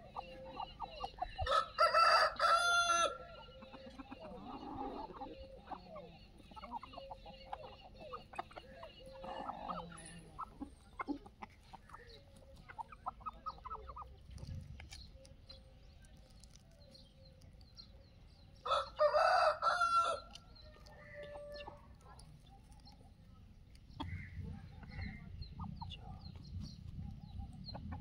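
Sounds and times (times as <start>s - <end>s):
chickens clucking: 0.0s - 28.0s
rooster crowing loudly: 1.5s - 3.2s, 18.7s - 20.3s.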